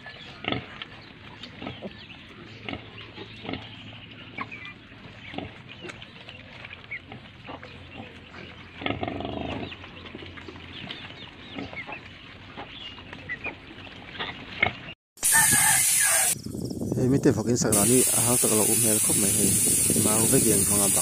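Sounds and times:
piglets squeaking and grunting: 0.0s - 16.4s
loud steady hiss: 15.2s - 16.4s, 17.7s - 21.0s.

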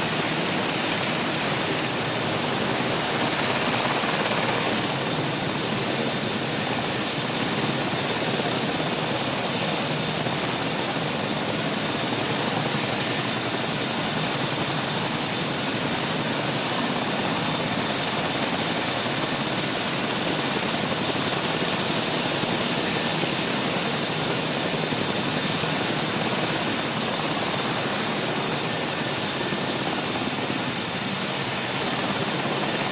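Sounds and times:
helicopter engine and rotor rush: 0.0s - 32.9s.

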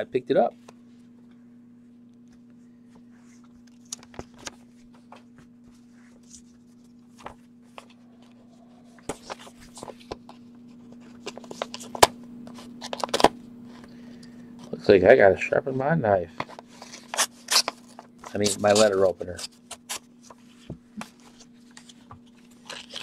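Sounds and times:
steady low hum: 0.0s - 23.0s
paper envelope rustling: 9.0s - 13.8s, 19.9s - 23.0s
sharp paper crack: 21.0s - 23.0s.

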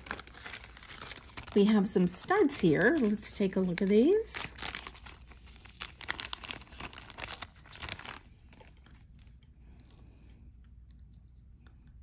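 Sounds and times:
packaging crinkling and tearing: 0.0s - 9.3s.

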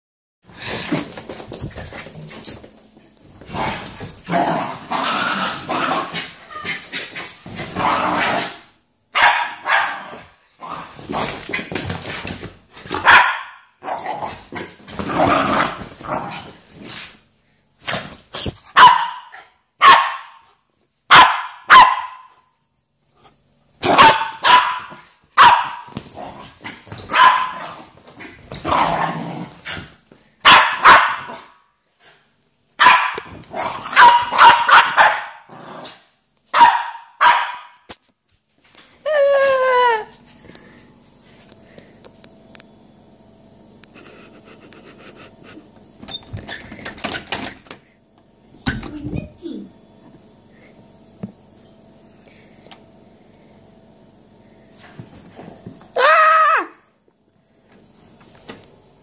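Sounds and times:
dog growling: 3.5s - 6.7s, 13.8s - 16.6s, 27.6s - 29.8s, 35.4s - 36.0s
dog barking sharply: 9.2s - 10.1s, 13.0s - 13.6s, 18.8s - 20.4s, 21.1s - 22.3s, 23.8s - 25.9s, 27.1s - 27.7s, 30.4s - 31.4s, 32.8s - 33.3s, 33.9s - 35.4s, 36.6s - 37.8s.

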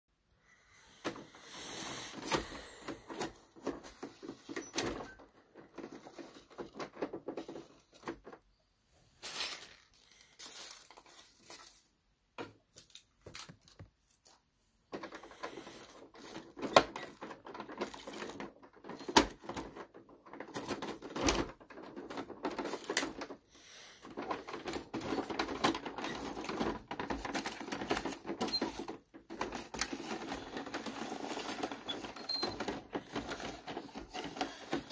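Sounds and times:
toy compactor clicking and rattling: 14.9s - 34.9s.

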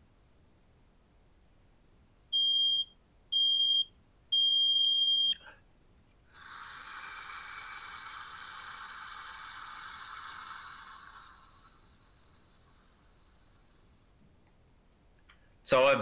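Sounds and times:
breath monitor beeps: 2.4s - 5.4s, 6.3s - 14.0s
exhaling into a tube: 6.3s - 13.9s.

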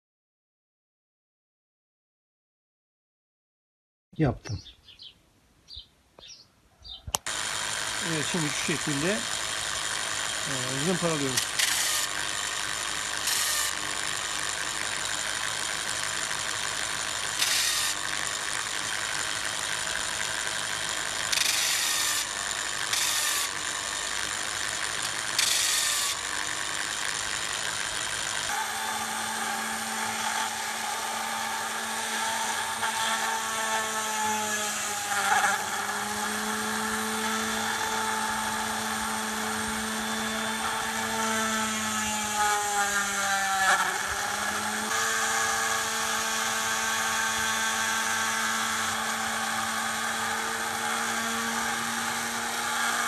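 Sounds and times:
electric drill spinning sanding disc: 7.1s - 53.0s
rotary tool whine: 7.1s - 53.0s
grinding hiss: 7.2s - 33.5s.

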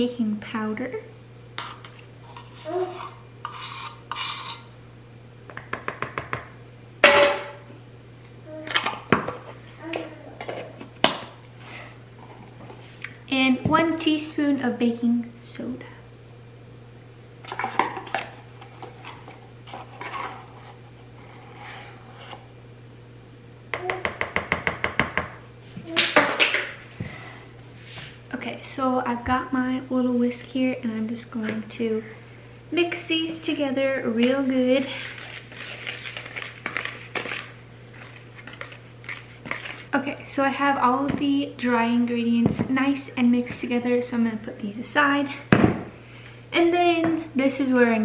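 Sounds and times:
spoon scraping can rim: 1.6s - 4.7s
spoon scraping in cardboard box: 1.7s - 4.7s, 34.8s - 39.9s.

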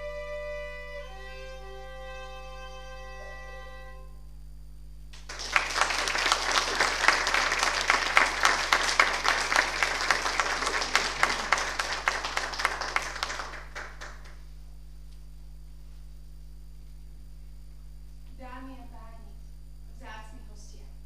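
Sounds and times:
audience applauding: 5.2s - 14.5s.

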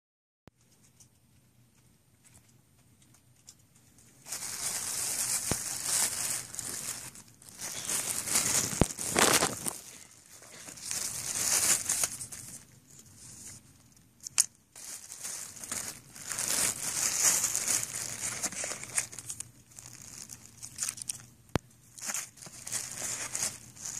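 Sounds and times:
plastic bag crinkling: 3.4s - 13.7s, 14.3s - 21.3s, 21.9s - 23.9s.

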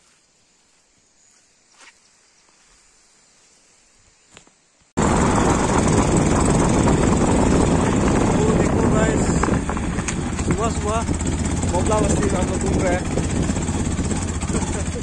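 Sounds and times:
motorcycle engine running: 5.0s - 15.0s
wind rushing across microphone: 5.0s - 15.0s.

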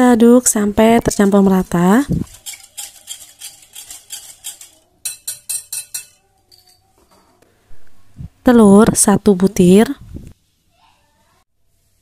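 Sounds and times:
whisk scraping glass bowl: 2.2s - 6.8s.

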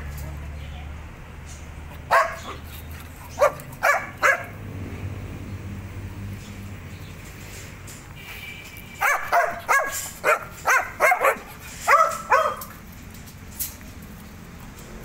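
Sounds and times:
dog barking: 2.1s - 2.6s, 3.3s - 4.6s, 9.0s - 12.7s.

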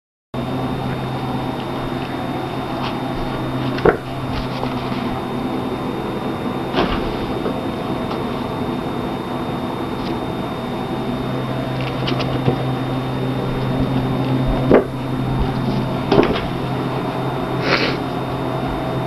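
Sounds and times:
steady background hum: 0.4s - 19.0s.

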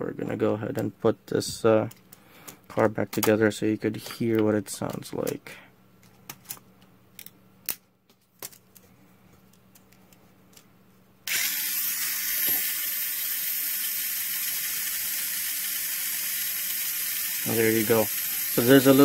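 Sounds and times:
toy car motor whirring: 11.3s - 19.0s.

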